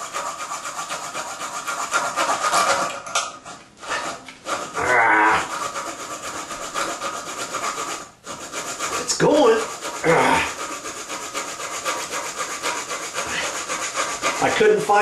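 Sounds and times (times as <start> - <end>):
saw blade rasping on metal bolt: 0.0 - 3.2, 3.8 - 4.8, 5.4 - 14.7.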